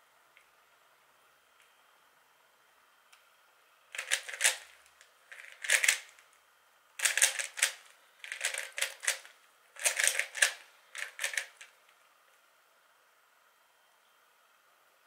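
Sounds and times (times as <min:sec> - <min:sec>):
puzzle cube clicking turns: 0:04.0 - 0:06.2, 0:07.0 - 0:11.7.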